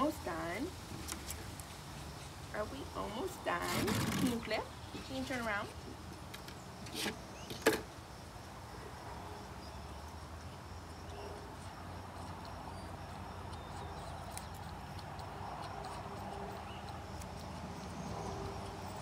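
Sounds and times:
outdoor background hum: 0:00.0 - 0:19.0.

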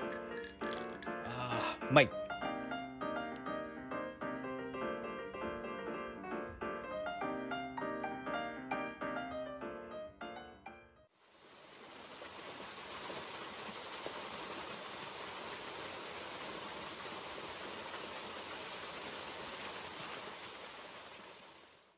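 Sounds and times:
waterfall rushing over rocks: 0:11.3 - 0:21.9.

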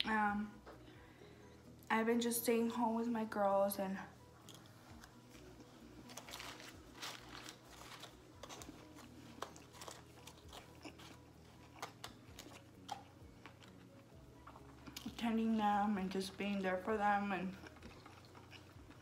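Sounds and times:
chewing crispy food: 0:04.4 - 0:15.3, 0:17.4 - 0:19.0.

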